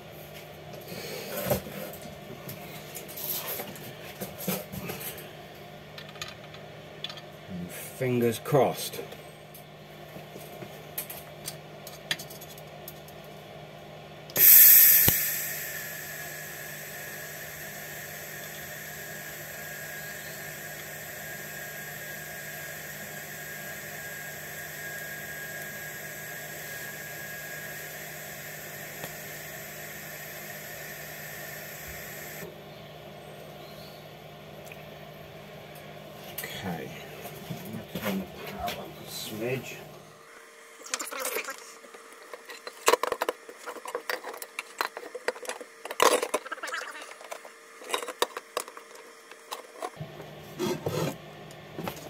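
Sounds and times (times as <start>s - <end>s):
welding arc hissing: 14.4s - 32.5s.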